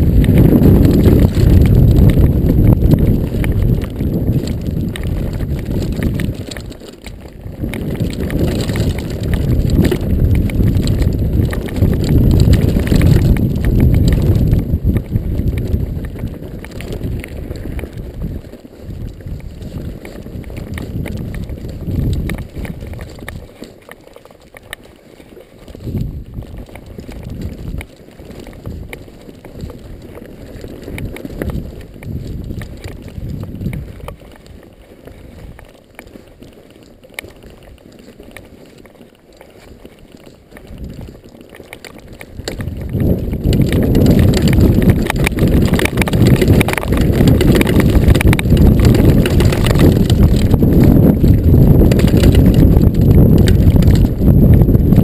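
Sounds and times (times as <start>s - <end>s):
wind buffeting microphone: 0.0s - 23.7s, 25.6s - 36.5s, 40.2s - 55.0s
bike tyre rumble: 0.0s - 55.0s.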